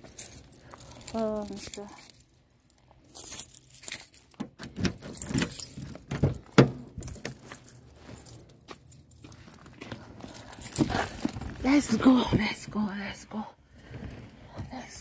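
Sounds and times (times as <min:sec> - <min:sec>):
keys jangling: 0:00.0 - 0:12.0.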